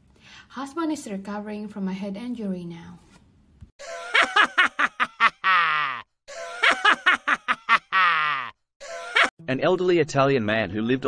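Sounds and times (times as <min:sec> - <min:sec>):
canned laughter: 0:03.8 - 0:09.3.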